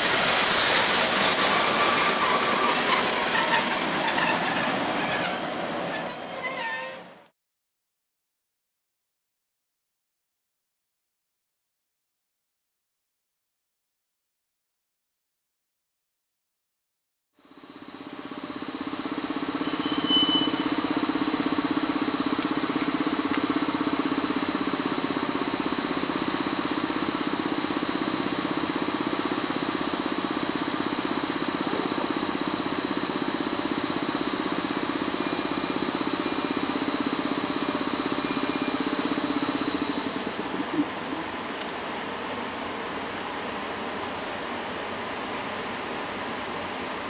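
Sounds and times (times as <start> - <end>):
locomotive blowers whining: 0.0 - 7.1.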